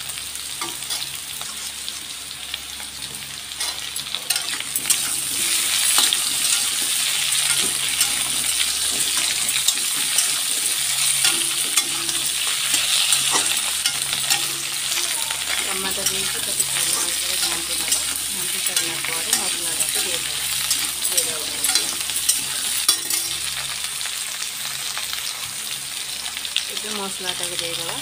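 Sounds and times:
food sizzling in hot oil: 0.0s - 28.0s
metal spatula scraping a pan: 3.6s - 23.6s.

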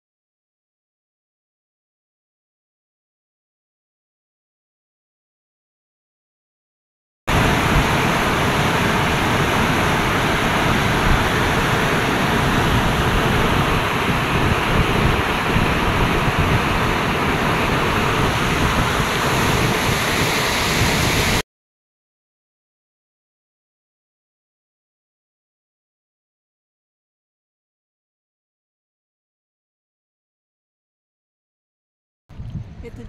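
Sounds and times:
river rapids rushing: 7.3s - 21.4s.

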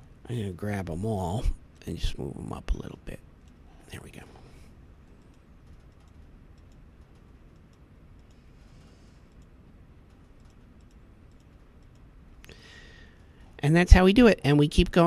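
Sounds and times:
low steady hum: 0.0s - 15.0s
computer mouse clicks: 5.0s - 12.6s.

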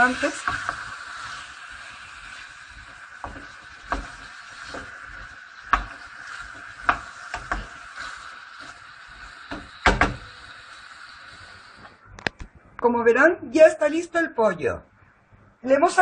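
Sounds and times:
wooden spoon scraping a pan: 0.0s - 10.2s
food sizzling in a frying pan: 0.0s - 12.1s.

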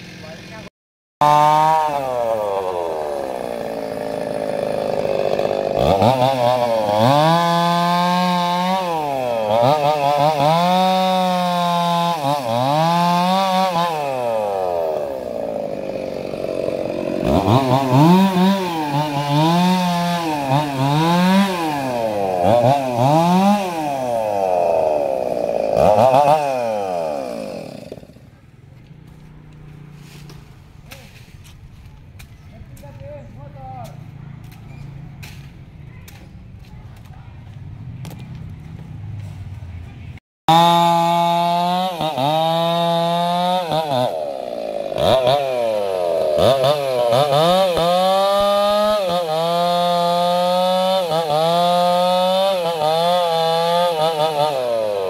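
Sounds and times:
chainsaw cutting log: 0.0s - 28.4s, 40.5s - 55.0s.

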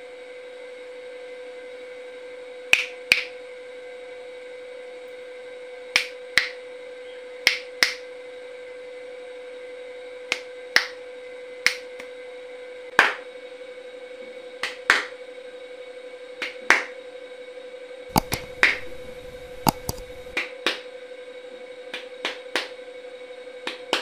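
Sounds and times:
finger snaps: 2.7s - 3.4s, 6.0s - 6.6s, 7.4s - 8.1s, 10.3s - 11.0s, 11.6s - 12.1s, 16.4s - 16.8s, 18.1s - 20.8s, 21.9s - 22.8s, 23.7s - 24.0s
hand claps: 2.7s - 3.4s, 6.0s - 6.6s, 7.4s - 8.1s, 10.3s - 11.0s, 11.6s - 12.1s, 13.0s - 13.2s, 14.6s - 15.1s, 16.4s - 16.9s, 18.1s - 19.0s, 19.6s - 20.8s, 21.9s - 22.8s, 23.6s - 24.0s
faint steady hum: 18.1s - 20.4s.

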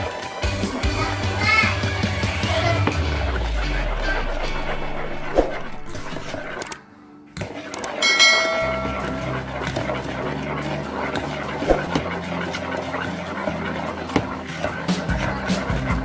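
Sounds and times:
whisk beating batter: 0.0s - 6.6s, 7.5s - 16.0s
bright bell chime: 8.0s - 9.4s.

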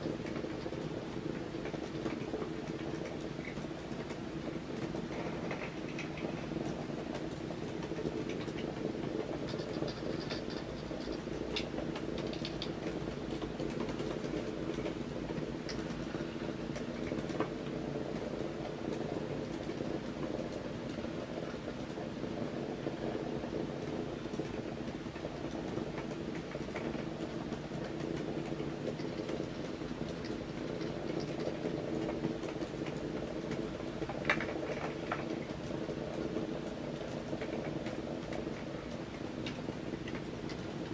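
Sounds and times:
light ticks and clicks: 0.0s - 22.0s, 23.8s - 40.9s.

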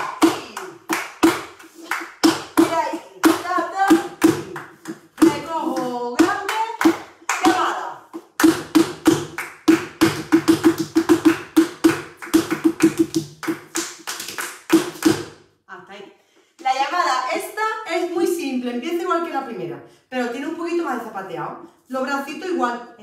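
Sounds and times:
hand clapping: 0.0s - 15.4s.

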